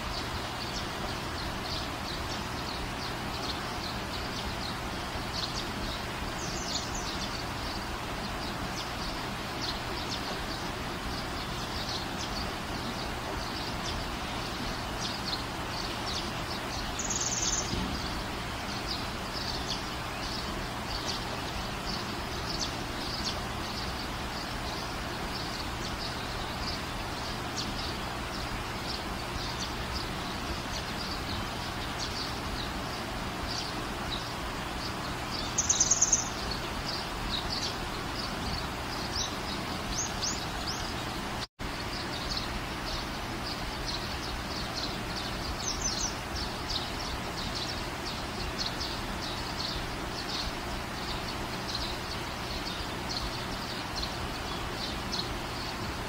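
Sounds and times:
small birds chirping: 0:00.0 - 0:56.0
steady background hiss: 0:00.0 - 0:56.0
bird trill: 0:03.4 - 0:32.7, 0:34.8 - 0:41.0.

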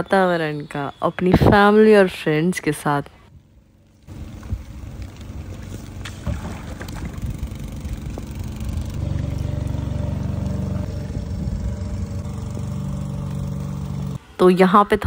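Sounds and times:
motor engine humming: 0:03.4 - 0:14.2
rain falling on water: 0:04.0 - 0:07.2.

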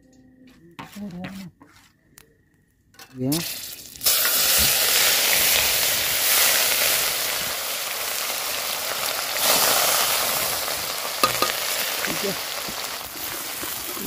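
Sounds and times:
food sizzling in hot oil: 0:03.3 - 0:14.0.

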